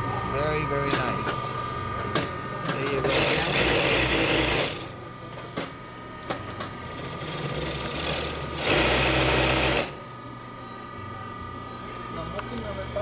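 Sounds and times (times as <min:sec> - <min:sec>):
sewing machine stitching: 0:07.1 - 0:10.0.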